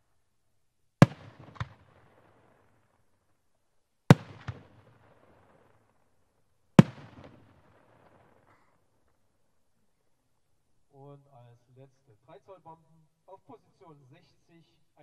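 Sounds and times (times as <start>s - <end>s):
firework shell bangs: 1.0s - 2.0s, 4.1s - 5.4s, 6.8s - 8.2s
crack with rolling echo: 1.0s - 3.4s, 4.1s - 9.4s.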